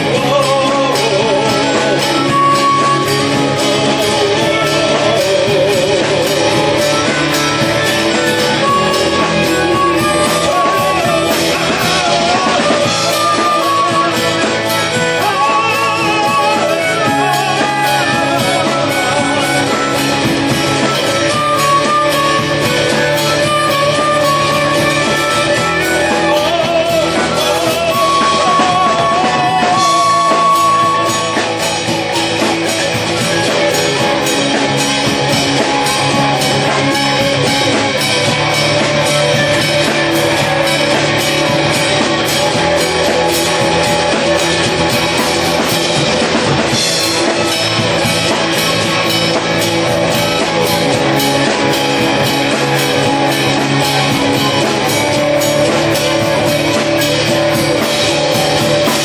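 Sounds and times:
man singing: 0.0 - 41.0
drum kit: 0.0 - 59.0
electric guitar: 0.0 - 59.0
harmonica: 0.0 - 59.0.

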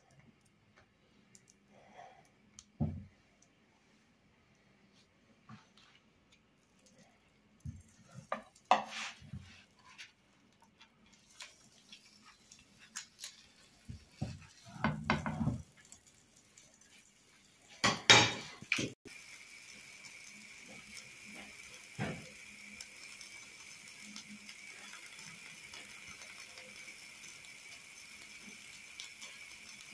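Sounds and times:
plastic spatula scraping frying pan: 8.7 - 10.1.

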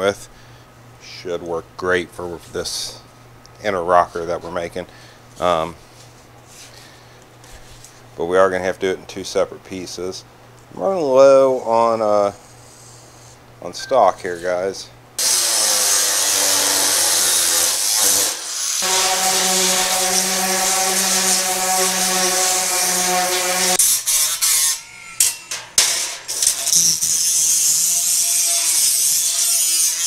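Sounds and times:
sander smoothing metal: 15.2 - 24.8, 25.8 - 30.0
angle grinder cutting steel: 15.2 - 30.0.

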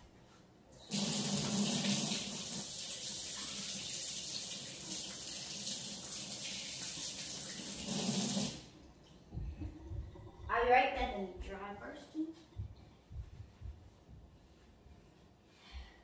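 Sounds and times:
faucet running into sink: 0.9 - 8.7.

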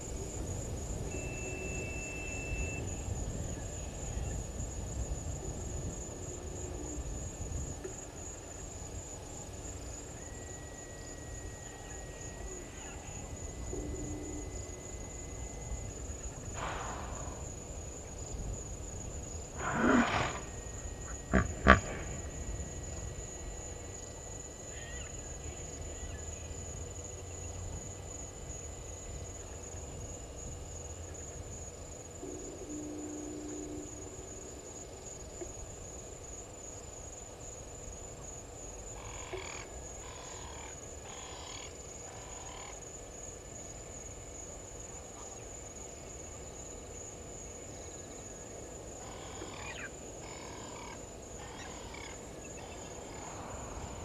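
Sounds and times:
thin high whine: 1.0 - 4.4, 6.7 - 30.5, 32.2 - 35.8
rapid animal call notes: 19.6 - 22.2.

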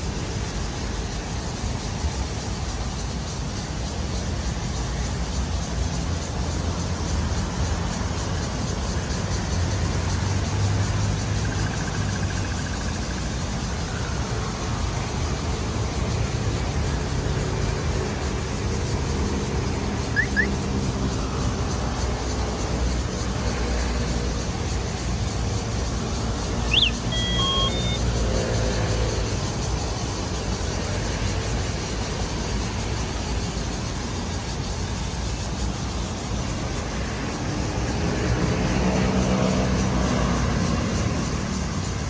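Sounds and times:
road traffic: 0.0 - 42.0
brief high chirp: 26.6 - 28.0.

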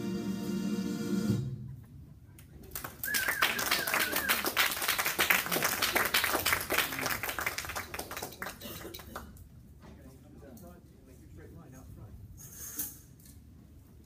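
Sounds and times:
music: 0.0 - 1.7
audience clapping: 2.6 - 9.4.

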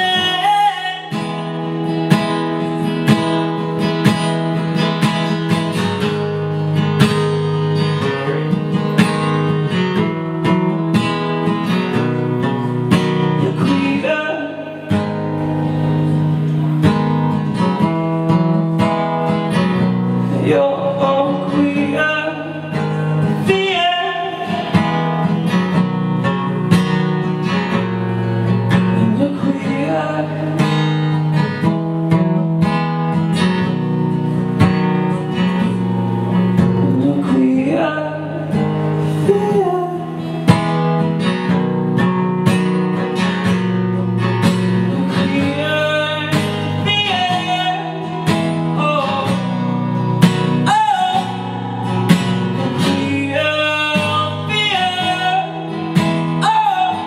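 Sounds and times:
man singing: 0.0 - 1.8, 13.4 - 15.2, 20.3 - 25.1, 28.7 - 30.9, 36.6 - 40.4, 44.7 - 57.0
acoustic guitar strumming: 0.0 - 57.0.

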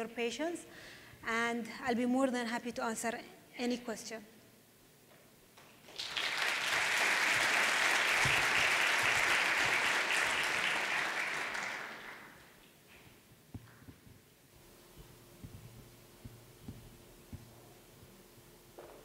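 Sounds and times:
audience applauding: 5.8 - 12.6.

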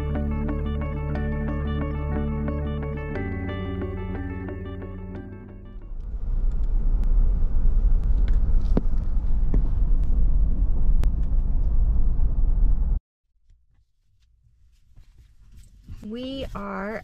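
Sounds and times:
car cabin road rumble: 5.8 - 13.0.

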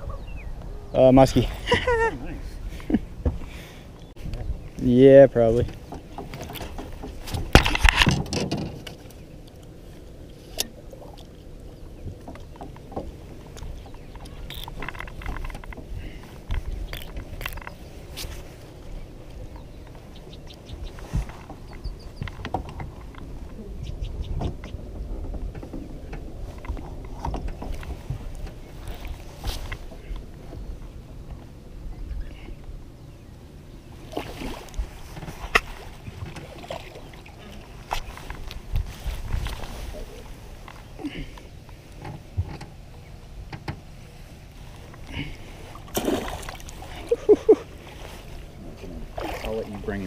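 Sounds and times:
fishing reel handling noise: 14.5 - 15.1.

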